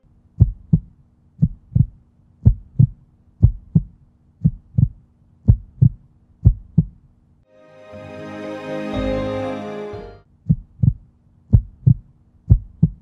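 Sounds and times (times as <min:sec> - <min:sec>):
heartbeat thumps: 0:00.4 - 0:07.0, 0:10.5 - 0:13.0
music: 0:07.5 - 0:10.2.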